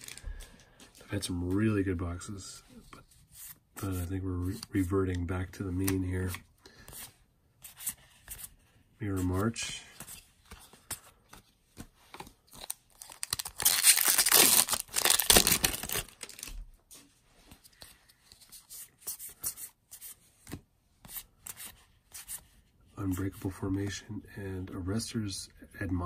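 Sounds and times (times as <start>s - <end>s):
cards rustling: 0.0s - 1.8s, 2.9s - 22.4s.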